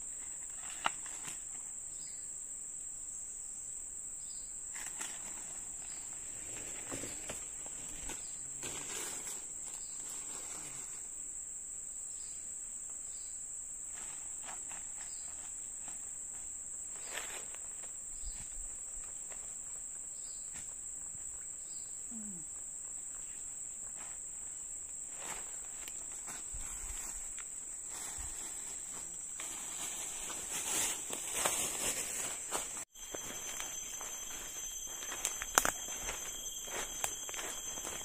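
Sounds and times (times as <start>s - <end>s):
insects shrilling: 25.1s - 38.0s.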